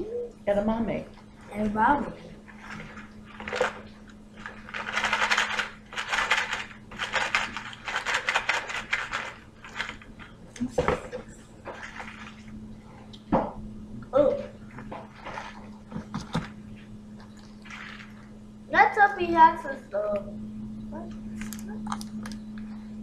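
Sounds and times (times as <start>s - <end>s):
beans rattling in plastic tray: 4.4s - 10.1s.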